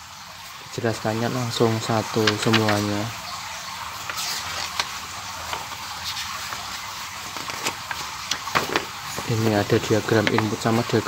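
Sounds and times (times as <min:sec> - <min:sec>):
paper pages rustling: 0:02.0 - 0:03.1, 0:03.9 - 0:11.0
paper crackles: 0:02.2 - 0:03.0, 0:04.0 - 0:10.8.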